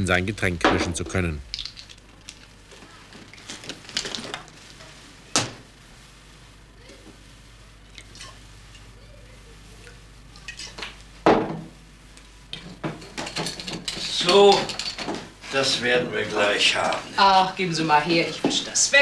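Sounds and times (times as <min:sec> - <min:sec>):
knock on table: 0:11.2 - 0:11.7.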